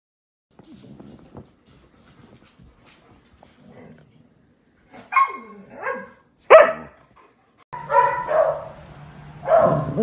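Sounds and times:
dog yipping: 5.1s - 6.9s, 7.8s - 8.7s
dog barking: 5.1s - 7.0s, 7.8s - 8.8s, 9.4s - 10.0s.

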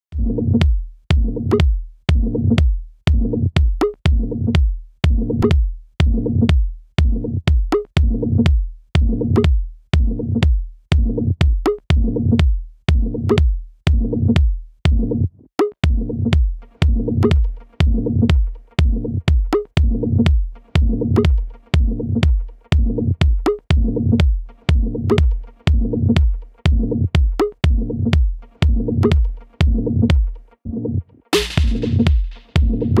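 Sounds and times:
techno synth stabs: 15.8s - 19.2s, 31.4s - 33.0s.

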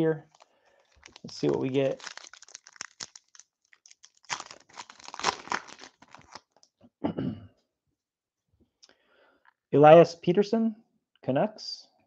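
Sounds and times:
foil wrapper tearing and crinkling: 0.3s - 6.6s.

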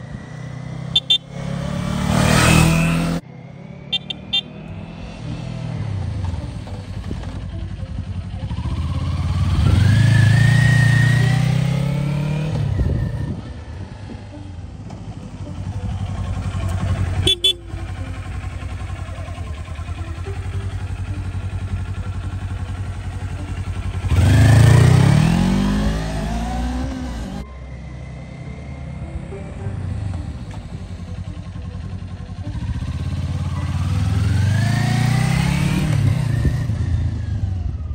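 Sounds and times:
motorcycle engine revving: 0.0s - 37.9s
motorcycle engine idling: 5.6s - 11.2s, 12.7s - 24.9s, 27.6s - 35.3s.

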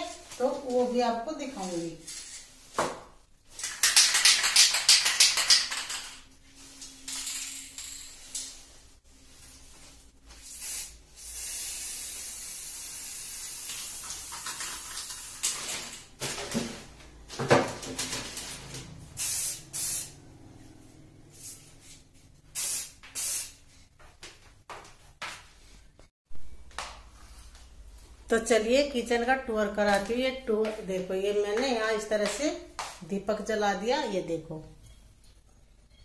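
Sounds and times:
spray paint can hissing: 10.4s - 15.5s, 19.2s - 20.1s, 22.5s - 23.6s.

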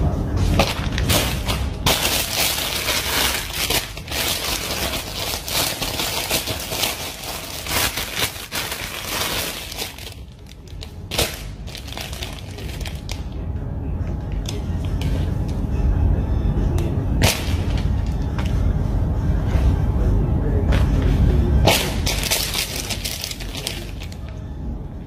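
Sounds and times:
plastic bag crinkling: 0.6s - 13.3s, 21.9s - 24.3s.

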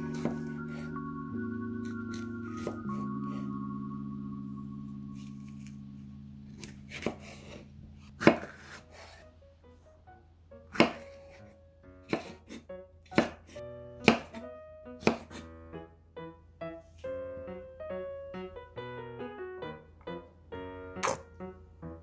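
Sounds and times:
soft background music: 0.0s - 22.0s
knife striking cutting board: 2.1s - 2.8s, 6.6s - 7.6s, 8.2s - 8.8s, 10.7s - 11.2s, 12.1s - 12.6s, 13.2s - 13.4s.

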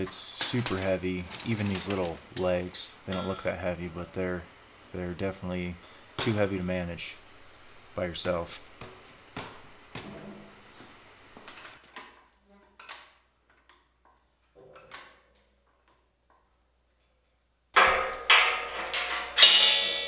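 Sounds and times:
loud metallic clangs: 17.8s - 20.0s.

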